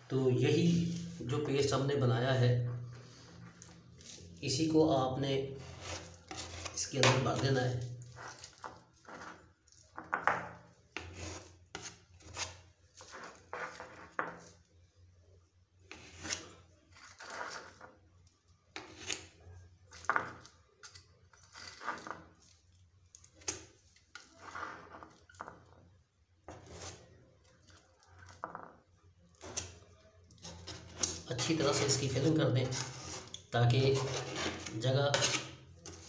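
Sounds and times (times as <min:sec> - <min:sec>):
paste scraping into wood gap: 0:05.6 - 0:06.8.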